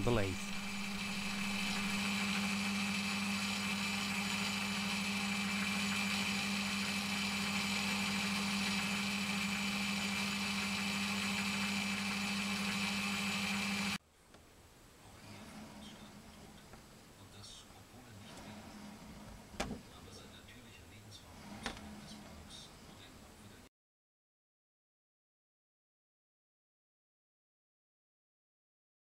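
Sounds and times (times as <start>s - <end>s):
metal lathe hum and whine: 0.0s - 14.0s.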